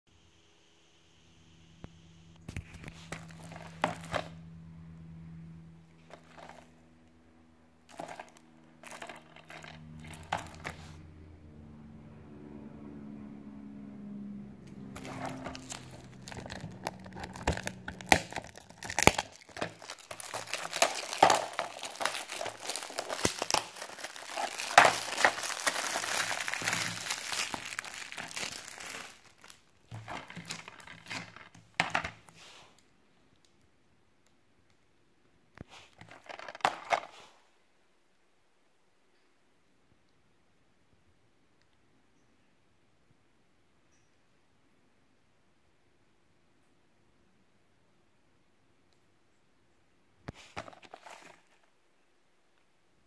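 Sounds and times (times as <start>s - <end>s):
cellophane crinkling and tearing: 2.5s - 4.4s, 6.0s - 6.7s, 7.9s - 11.0s, 15.0s - 32.2s.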